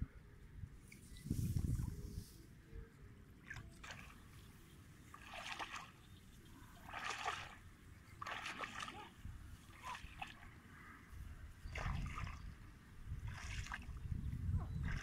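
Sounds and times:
footsteps splashing in muddy water: 3.4s - 4.4s, 5.0s - 10.6s, 11.7s - 15.0s.

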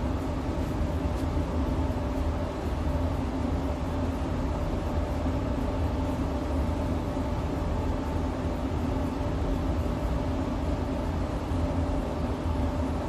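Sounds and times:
ventilation fan humming: 0.0s - 13.0s.

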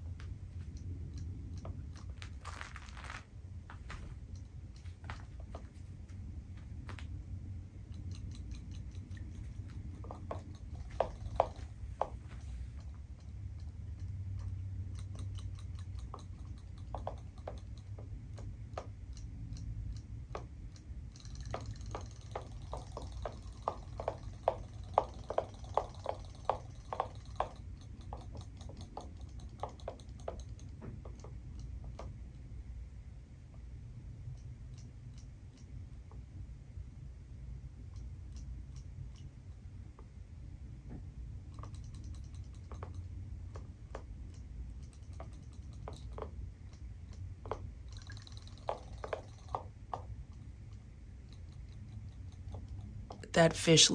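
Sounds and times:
toy fish tail ticking on tub wall: 0.0s - 2.5s, 6.8s - 32.7s, 41.3s - 53.9s.

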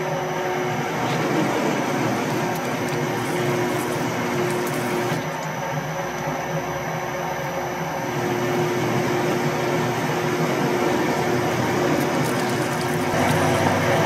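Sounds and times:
metal lathe humming: 0.0s - 14.0s.

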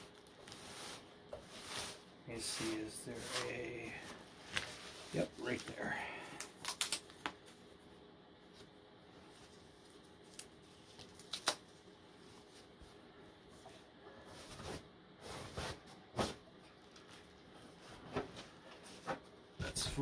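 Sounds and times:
foam sheet rustling: 0.0s - 6.0s.

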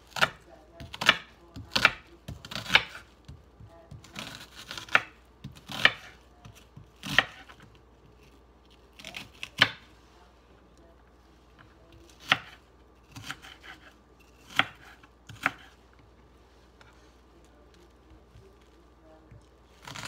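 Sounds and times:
knife chopping onion on board: 0.0s - 8.3s, 9.0s - 9.9s, 11.9s - 15.8s.

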